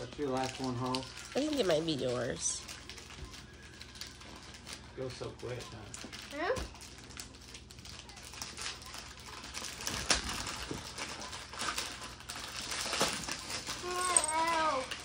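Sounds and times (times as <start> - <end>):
wrapping paper crinkling and tearing: 0.0 - 15.0
child calling out: 13.8 - 14.9.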